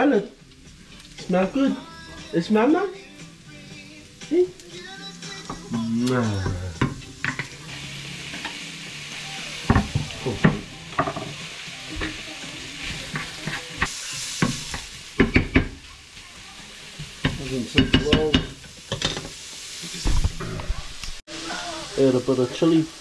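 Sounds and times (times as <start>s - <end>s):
food sizzling in a frying pan: 0.0s - 23.0s
wooden spoon scraping a pan: 12.8s - 14.8s.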